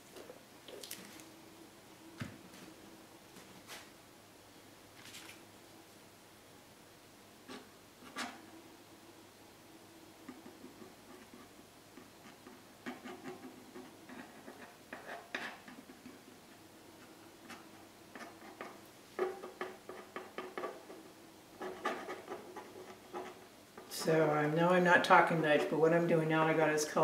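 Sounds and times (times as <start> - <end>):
stick scraping paint on wood: 10.3 - 16.2, 17.0 - 24.2.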